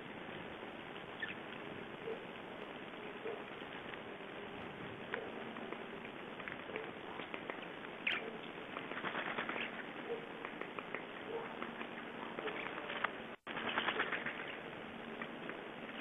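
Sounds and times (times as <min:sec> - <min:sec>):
steady hiss: 0:00.0 - 0:16.0
birds pecking ticks and taps: 0:05.1 - 0:15.6.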